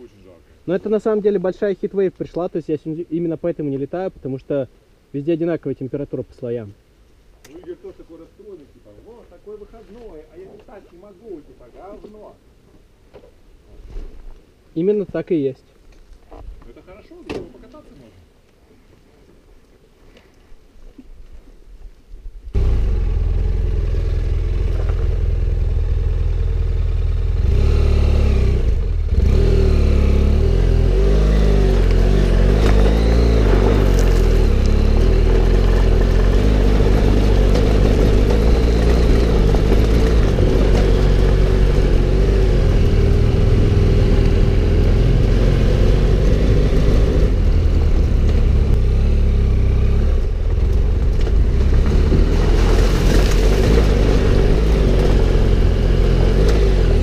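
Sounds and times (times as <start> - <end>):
motorcycle engine running: 22.6 - 52.5.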